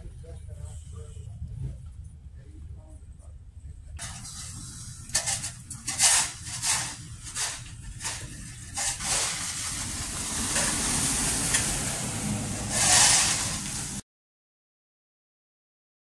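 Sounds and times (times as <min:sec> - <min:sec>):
car tyres hissing on icy road: 0:04.0 - 0:14.0
shovel scraping ice and snow: 0:04.0 - 0:14.0.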